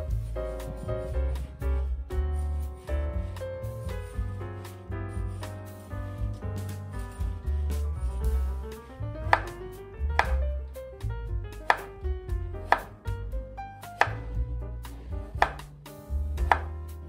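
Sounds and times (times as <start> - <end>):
knife slicing on cutting board: 12.7 - 13.0, 13.9 - 15.8, 16.4 - 16.8.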